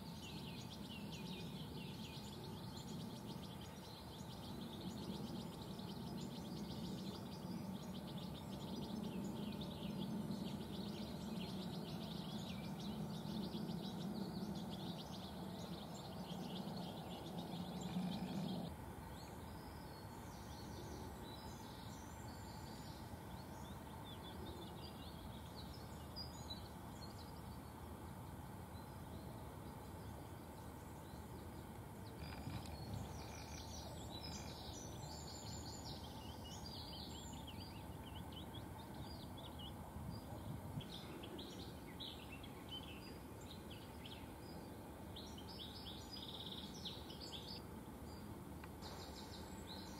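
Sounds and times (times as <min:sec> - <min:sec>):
songbirds chirping: 0:00.0 - 0:49.9
steady low hum: 0:00.0 - 0:49.9.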